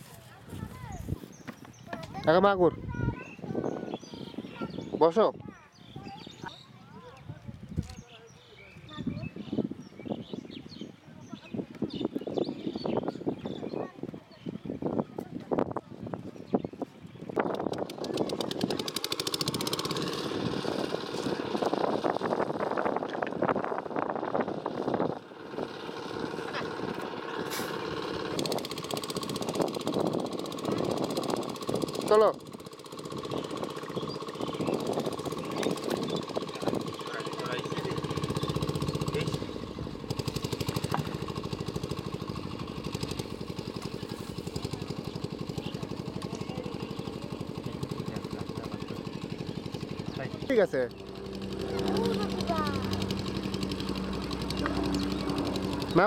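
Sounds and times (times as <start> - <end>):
small engine running: 17.4 - 56.0
rapid rattle: 17.5 - 56.0
motor droning: 18.1 - 56.0.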